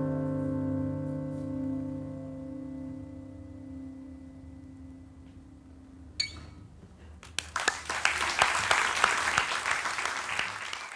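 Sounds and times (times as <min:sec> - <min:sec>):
audience applause: 0:07.2 - 0:10.9.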